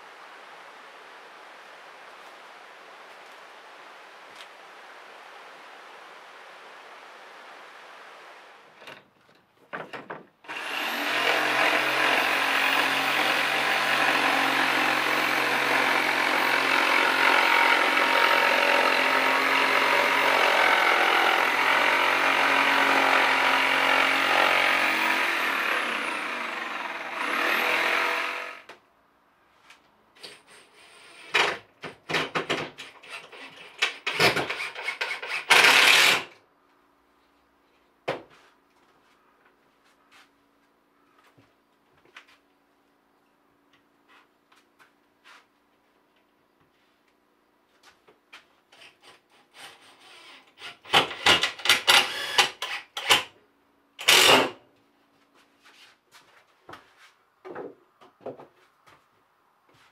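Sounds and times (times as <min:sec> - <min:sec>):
knocks and clatters: 0:08.8 - 0:10.4
power tool humming: 0:10.5 - 0:28.7.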